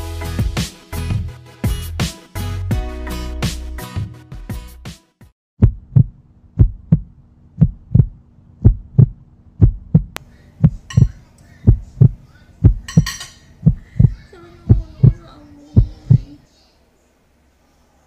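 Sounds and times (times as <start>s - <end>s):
heartbeat thumps: 5.6s - 15.2s, 15.8s - 16.4s.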